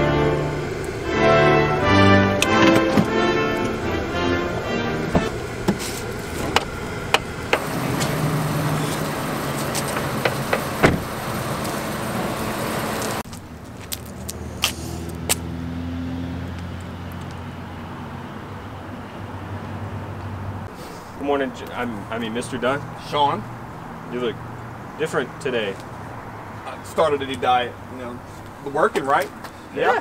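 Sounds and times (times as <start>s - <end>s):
steady rushing noise: 0.0s - 13.3s
car door shutting: 2.4s - 3.8s, 4.6s - 13.2s.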